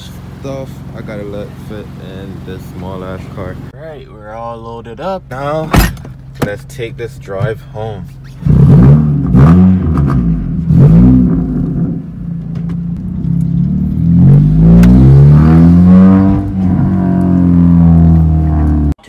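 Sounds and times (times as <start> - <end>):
car engine accelerating: 7.3 - 19.0.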